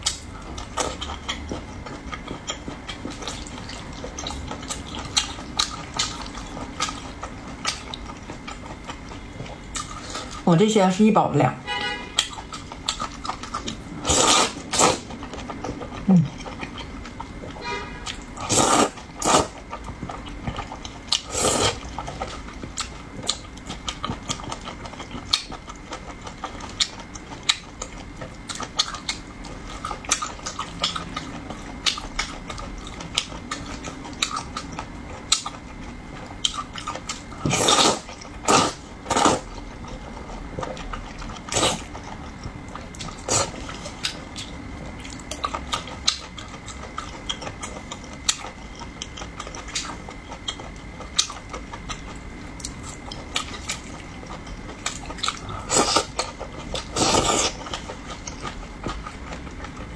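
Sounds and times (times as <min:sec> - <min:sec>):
wet chewing clicks: 0:00.0 - 0:10.4, 0:12.2 - 0:59.9
person slurping: 0:14.0 - 0:15.1, 0:18.4 - 0:19.6, 0:21.3 - 0:21.9, 0:37.4 - 0:39.4, 0:56.9 - 0:57.6.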